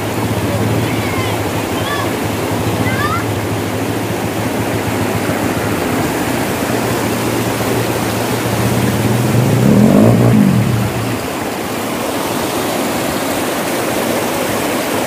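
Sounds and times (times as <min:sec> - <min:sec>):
motorcycle engine running: 0:00.0 - 0:12.4
river rushing over stones: 0:00.0 - 0:15.0.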